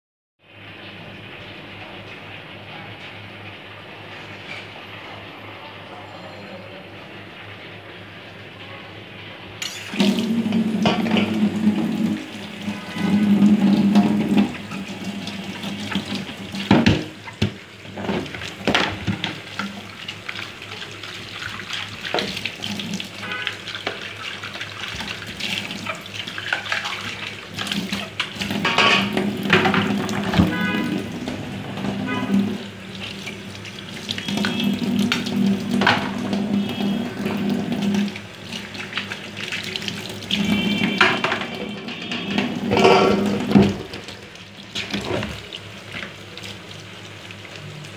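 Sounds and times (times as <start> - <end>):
tap water running into sink: 9.6 - 47.9
water splashing: 9.6 - 47.9
bowl knocking against sink: 16.7 - 19.3, 28.6 - 31.0, 40.4 - 44.0.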